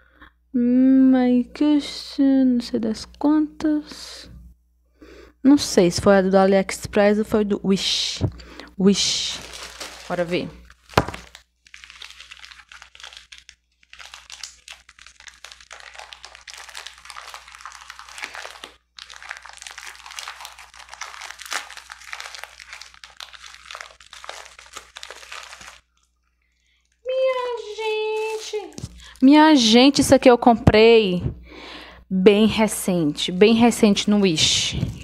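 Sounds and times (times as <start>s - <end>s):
packaging wrap crinkling: 8.9s - 29.3s, 33.3s - 35.0s.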